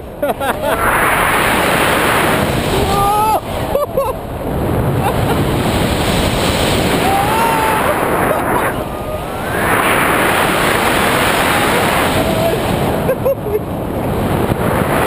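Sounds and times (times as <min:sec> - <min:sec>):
wind rushing over microphone: 0:00.0 - 0:15.0
faint rising tones: 0:07.7 - 0:12.2.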